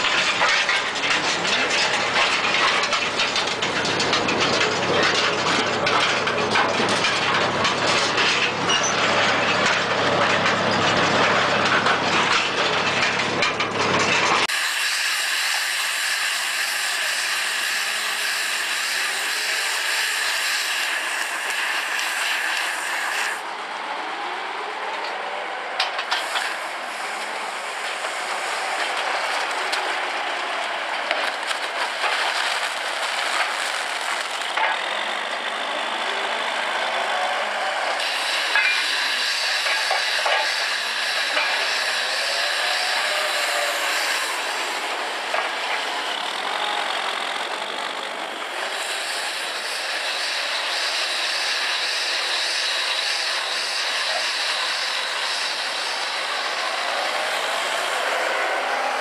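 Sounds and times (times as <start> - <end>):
diesel engine running: 0.0 - 14.6, 15.8 - 59.0
bale wrapper machinery: 0.0 - 23.6, 25.8 - 59.0.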